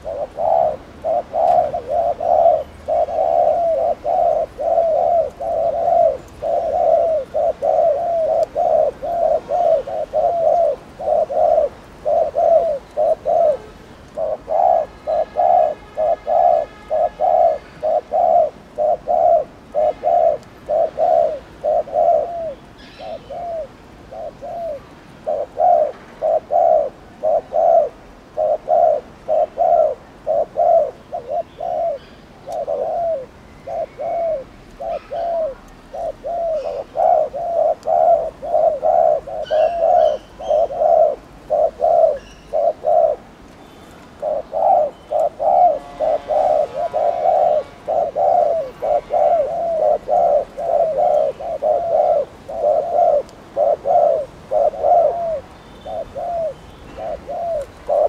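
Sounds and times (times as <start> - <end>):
dove cooing: 0.0 - 43.4, 44.0 - 58.0.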